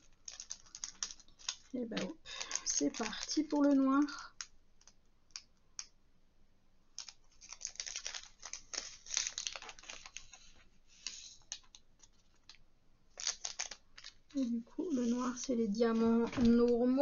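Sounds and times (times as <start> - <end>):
plastic packaging rustling: 0.0 - 5.4, 6.9 - 17.0
light clicking of resin beads: 0.0 - 6.0, 6.9 - 12.6.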